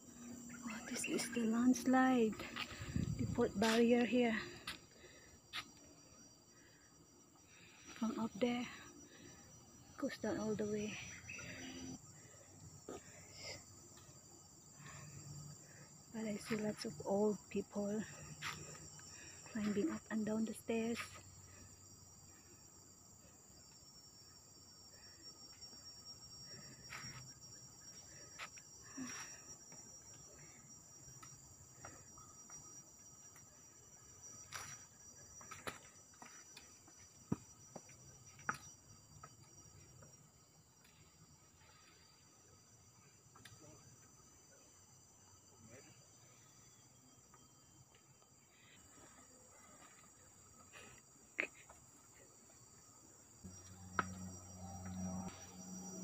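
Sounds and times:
insects chorus: 0:00.0 - 0:56.0
footsteps on trail: 0:02.3 - 0:05.8, 0:18.2 - 0:18.8, 0:35.4 - 0:39.4.

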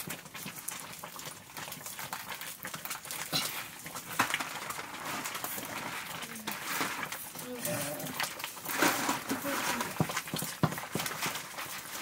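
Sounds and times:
ladle scraping and knocking wok: 0:03.4 - 0:12.0.

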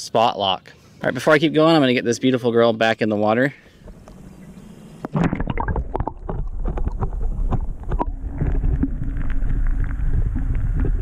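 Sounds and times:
low rumble: 0:03.8 - 0:11.0
water splashing: 0:03.8 - 0:11.0.

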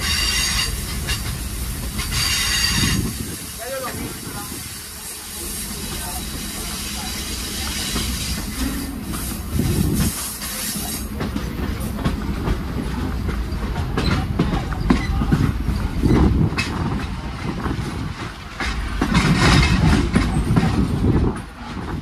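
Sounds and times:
train wheels rumbling: 0:00.0 - 0:22.0
clacks over rails: 0:07.6 - 0:22.0.

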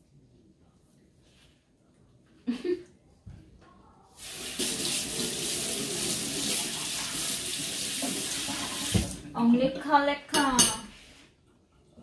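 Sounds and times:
tap running water into sink: 0:04.2 - 0:09.3.

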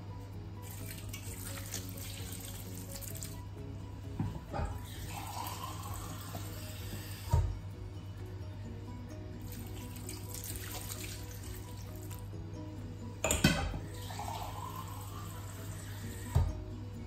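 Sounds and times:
water pouring into a pot: 0:00.6 - 0:03.4, 0:04.7 - 0:07.4, 0:09.4 - 0:12.3, 0:13.8 - 0:16.4.

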